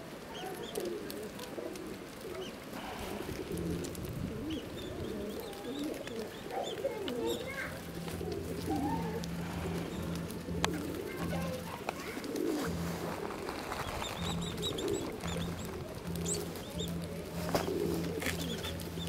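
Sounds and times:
pigeons cooing: 0.0s - 19.0s
small birds chirping: 0.0s - 19.0s
low steady hum: 7.7s - 19.0s.

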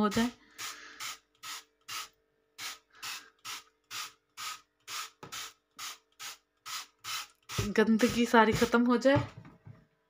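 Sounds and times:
spray bottle squirting: 0.5s - 8.3s.

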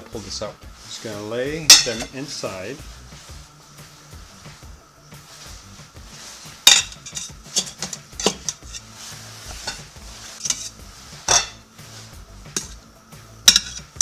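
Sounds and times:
metal utensil clinking on steel pot: 1.7s - 2.2s, 6.6s - 8.8s, 9.6s - 11.6s, 12.6s - 12.8s, 13.5s - 14.0s.

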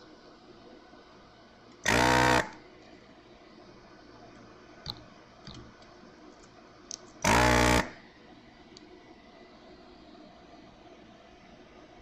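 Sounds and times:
desoldering pump buzzing: 1.8s - 2.6s, 7.2s - 8.0s.

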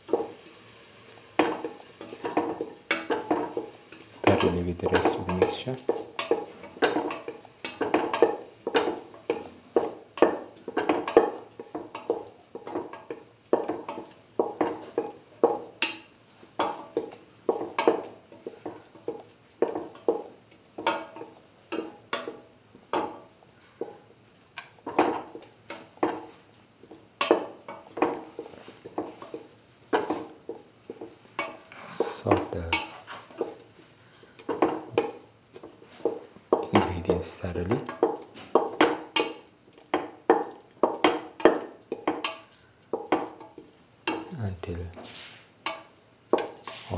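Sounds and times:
spatula scraping a steel pan: 30.9s - 36.3s, 45.0s - 46.9s.

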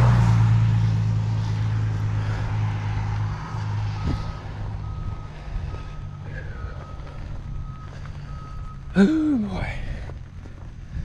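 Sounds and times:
heavy vehicle engine droning: 0.0s - 11.0s
reversing beeper: 3.6s - 10.0s.

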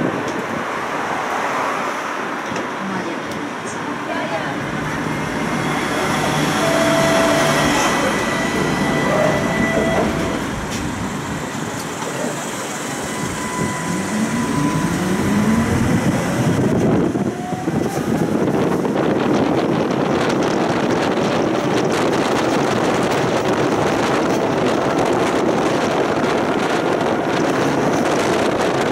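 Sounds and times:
electric tram motor whine: 4.0s - 20.5s.

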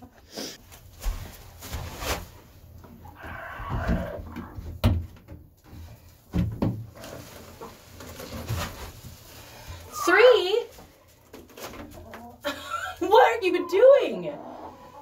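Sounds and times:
plastic knocks and rattles: 6.3s - 6.9s.

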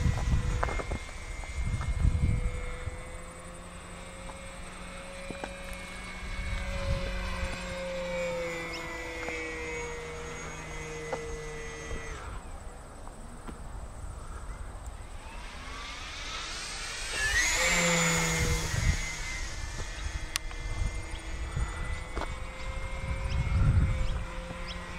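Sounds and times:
model airplane motor whining: 0.0s - 24.9s.

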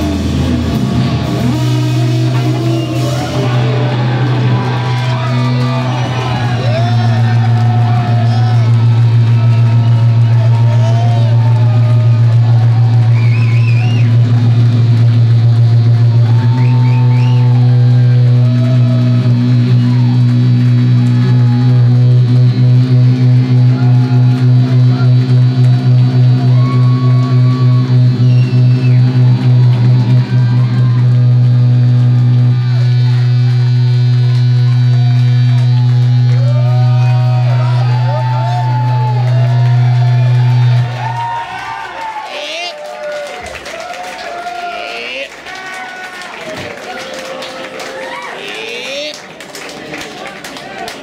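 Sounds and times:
low guitar feedback drone: 0.0s - 42.8s, 44.5s - 45.4s
squealing feedback whistles: 1.4s - 3.8s, 12.9s - 14.3s, 16.2s - 18.4s, 22.9s - 31.3s.

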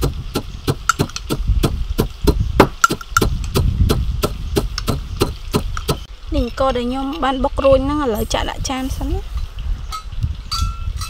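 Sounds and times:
stone pestle pounding in mortar: 0.0s - 6.0s.

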